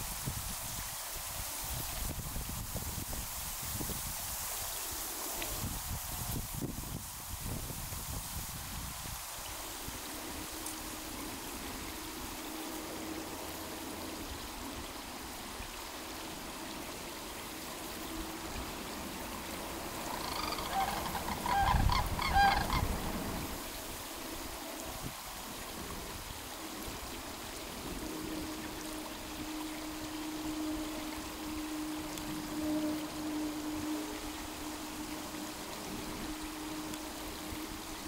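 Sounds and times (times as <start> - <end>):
waterfowl honking: 19.5 - 23.6.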